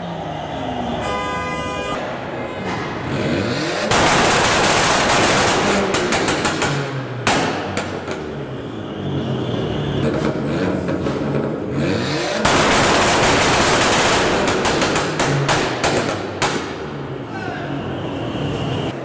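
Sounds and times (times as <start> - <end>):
exhaust popping bangs: 2.6 - 8.4, 10.1 - 17.1
car engine revving: 2.6 - 17.3.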